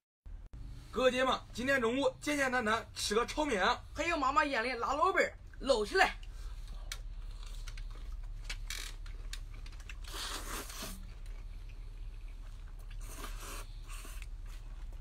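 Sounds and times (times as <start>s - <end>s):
low steady hum: 0.3s - 15.0s
noodles being slurped: 9.1s - 15.0s.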